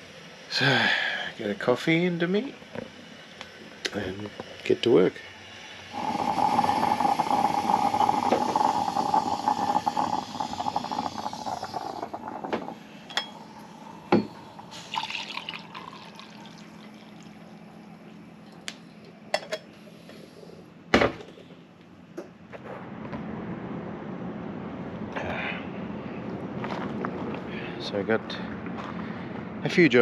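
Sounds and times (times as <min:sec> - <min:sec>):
moka pot rushing hiss: 0:00.0 - 0:20.7
coffee pouring into mug: 0:05.9 - 0:17.8.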